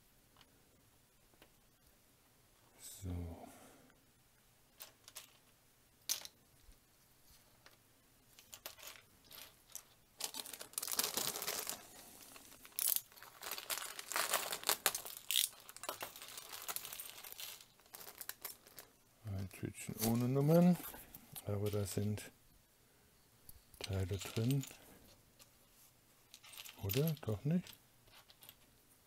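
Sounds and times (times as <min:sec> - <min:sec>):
plastic bag crinkling: 0:08.5 - 0:19.0, 0:23.9 - 0:24.8.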